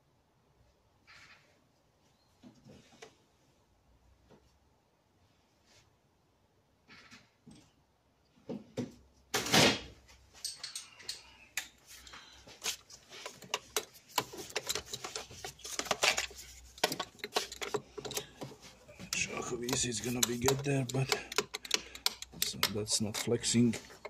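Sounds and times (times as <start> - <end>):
hands rustling among hoses: 11.8 - 24.0
socket tool clicking and clinking: 13.2 - 24.0.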